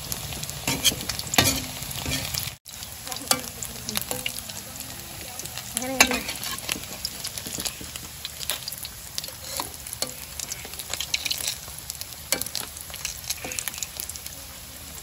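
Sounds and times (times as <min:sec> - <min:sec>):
dumplings sizzling in oil: 0:00.0 - 0:15.0
metal spatula scraping wok: 0:00.6 - 0:02.6, 0:05.3 - 0:14.1.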